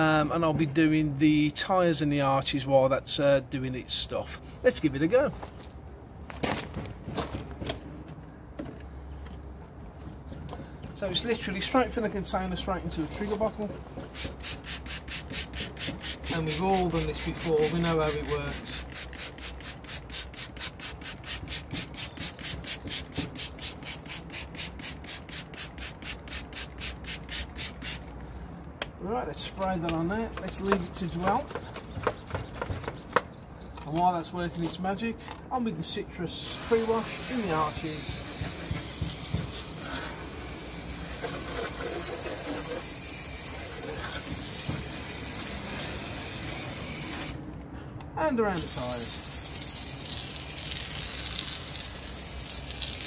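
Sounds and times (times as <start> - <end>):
trigger sprayer hissing: 14.1 - 28.1, 36.5 - 41.6, 42.4 - 47.4.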